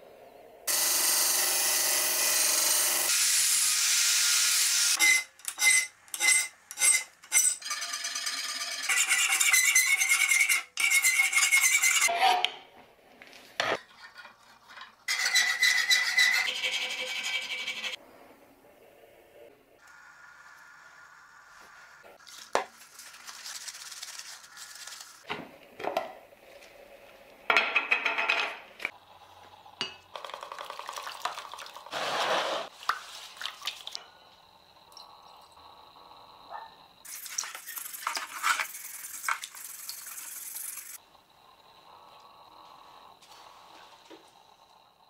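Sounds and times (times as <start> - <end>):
powder poured into water: 30.1 - 34.0
scraping on workbench: 31.9 - 32.7.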